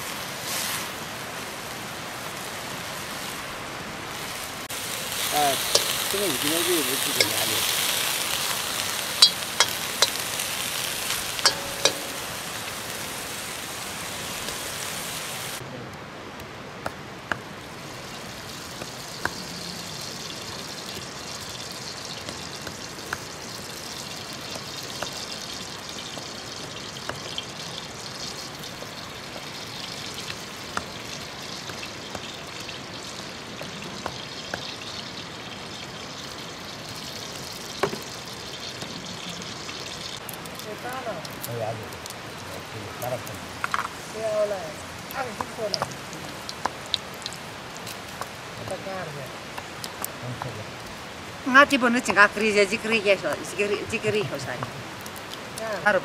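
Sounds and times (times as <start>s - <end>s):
greens sizzling in a wok: 0.0s - 15.6s, 17.5s - 56.0s
steel ladle clinking and scraping: 5.6s - 6.2s, 6.9s - 8.0s, 9.2s - 10.5s, 11.1s - 12.6s.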